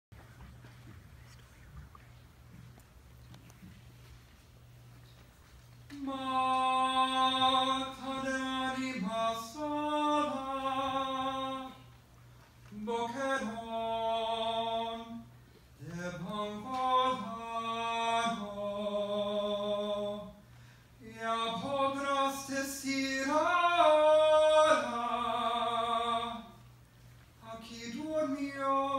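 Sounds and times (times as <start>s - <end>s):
man singing unaccompanied: 5.9s - 11.9s, 12.7s - 20.4s, 21.0s - 26.6s, 27.4s - 28.9s.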